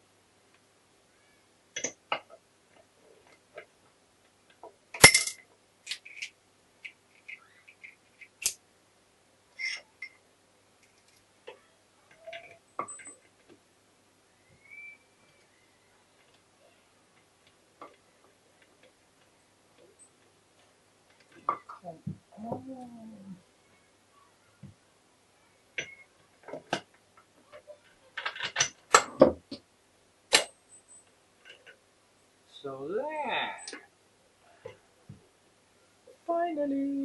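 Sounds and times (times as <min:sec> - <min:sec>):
metallic clicks of tools and parts: 0:05.0 - 0:08.6, 0:09.6 - 0:10.2.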